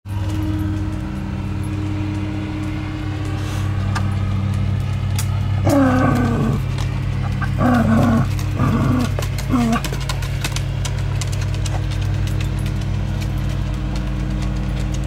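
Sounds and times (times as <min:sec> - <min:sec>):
lawn mower engine droning: 0:00.0 - 0:15.0
wavering howl-like call: 0:05.6 - 0:10.0.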